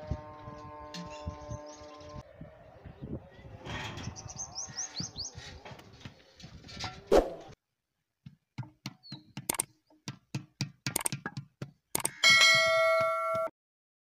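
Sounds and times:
quick clicks and knocks: 8.6s - 9.7s, 10.8s - 12.2s
bell ding: 12.2s - 13.5s.

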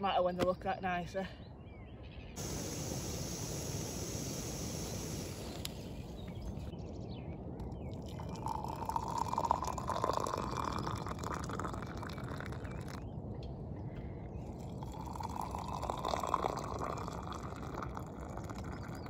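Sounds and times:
steady hiss: 2.4s - 6.7s
water poured into a mug: 7.8s - 13.0s, 14.5s - 19.0s.

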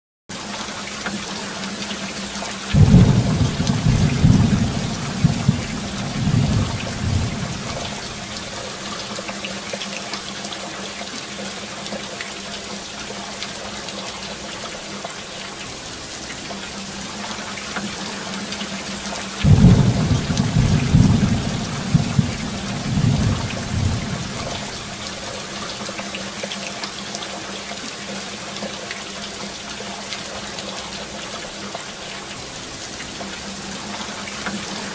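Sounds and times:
steady rain: 0.3s - 34.9s
thunder rumbling: 2.8s - 8.7s, 19.4s - 25.4s.

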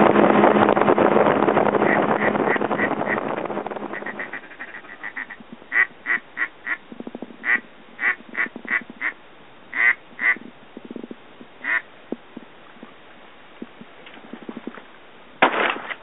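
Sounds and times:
ducks quacking: 1.8s - 6.8s, 7.4s - 10.4s, 11.6s - 11.8s
low duck chatter: 3.9s - 6.8s, 7.4s - 10.4s, 11.6s - 11.8s.

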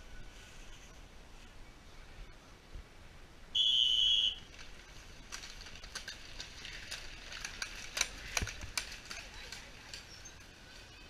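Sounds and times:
whistle blast: 3.5s - 4.4s
mountain bikes rattling past: 3.6s - 11.0s.

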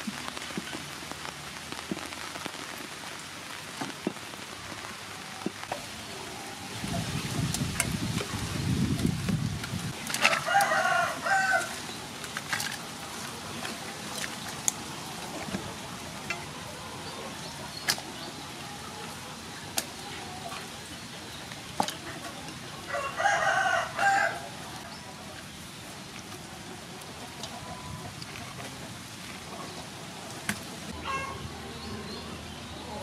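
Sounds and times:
rooster crowing: 10.2s - 11.7s, 22.9s - 24.5s.

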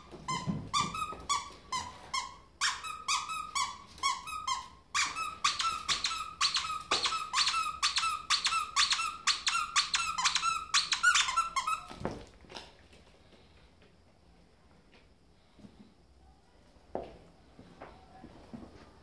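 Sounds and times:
plush toy squeaker squeaking: 0.3s - 12.0s.

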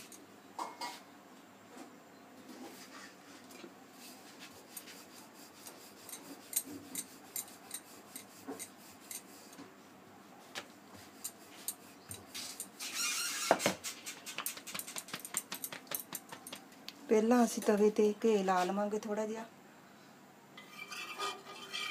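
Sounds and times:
rolling pin rubbing on dough: 4.0s - 9.7s
rolling pin tapping board: 13.6s - 16.7s.

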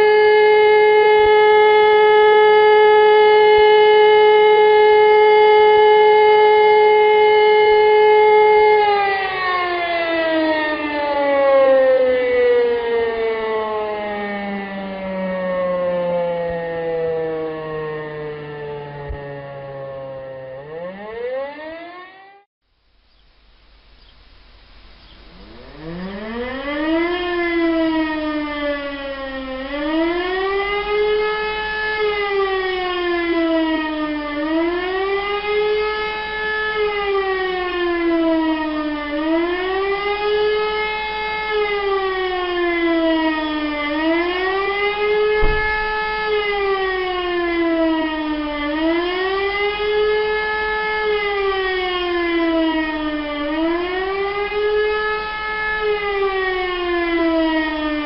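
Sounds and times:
civil defence siren wailing: 0.0s - 22.5s, 25.1s - 58.0s
low thump: 45.4s - 46.1s.

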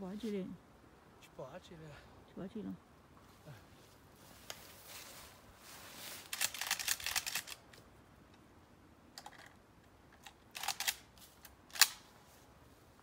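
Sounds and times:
dry brush crackling: 3.3s - 7.9s.

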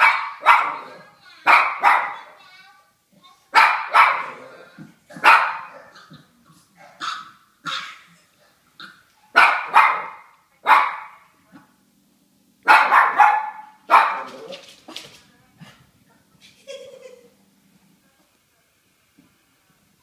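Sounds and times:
dog barking: 0.0s - 0.9s, 1.5s - 2.3s, 3.6s - 4.5s, 5.2s - 6.0s, 6.8s - 8.0s, 9.3s - 11.3s, 12.6s - 14.5s.

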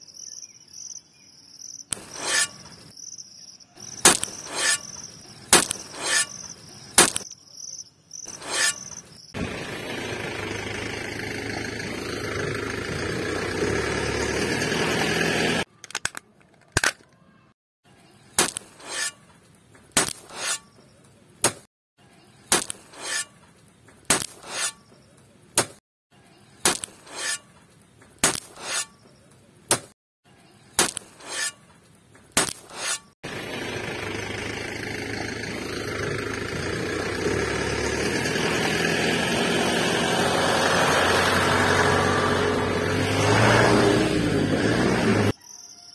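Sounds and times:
metal shovel scooping sand: 1.9s - 2.9s, 4.0s - 7.2s, 8.3s - 9.5s, 18.5s - 19.3s, 20.0s - 20.8s, 22.6s - 23.4s, 24.2s - 24.9s, 26.7s - 27.6s, 28.2s - 29.0s, 30.8s - 31.7s, 32.4s - 33.2s
toy truck engine running: 9.4s - 15.7s, 33.3s - 39.0s.

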